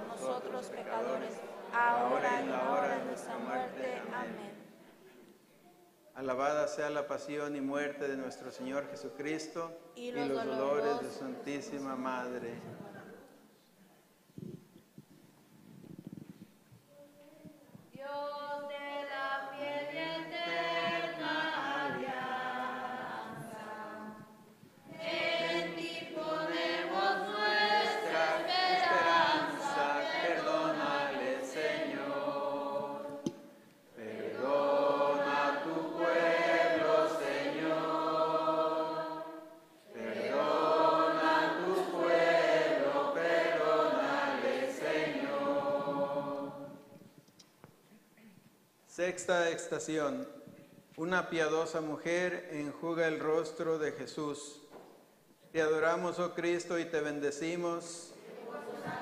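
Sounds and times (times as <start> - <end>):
congregation singing a hymn: 0.0 - 5.2, 6.2 - 13.2, 18.1 - 47.1, 55.7 - 59.0.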